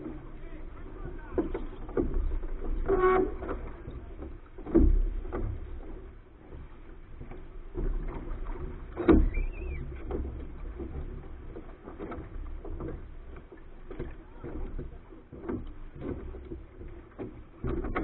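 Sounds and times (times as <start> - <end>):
water rushing along a hull: 0.0 - 18.0
brief high squeak: 9.3 - 9.8.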